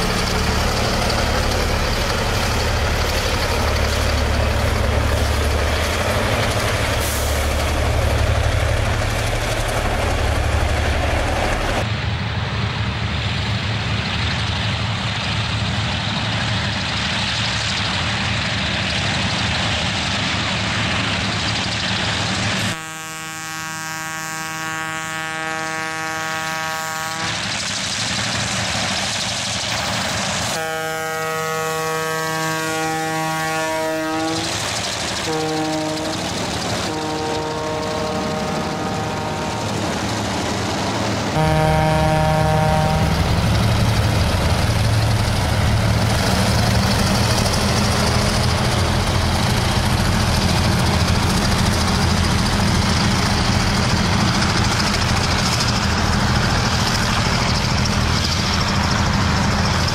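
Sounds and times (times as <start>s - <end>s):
diesel locomotive engine throbbing: 0.0s - 59.9s
locomotive air horn: 22.6s - 27.5s, 30.5s - 40.0s, 41.3s - 43.3s.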